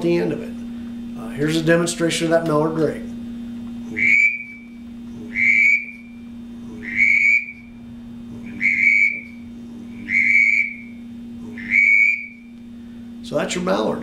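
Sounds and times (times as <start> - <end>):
faint low hum: 0.0 - 14.0
duck call whistle notes: 4.0 - 4.6, 5.4 - 6.0, 6.9 - 7.6, 8.6 - 9.3, 10.1 - 10.9, 11.6 - 12.4.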